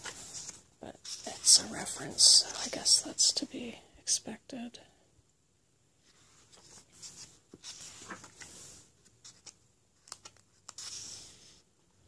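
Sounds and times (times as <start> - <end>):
book pages turning: 0.0 - 2.9, 6.1 - 11.6
hands sliding across paper: 6.1 - 8.9.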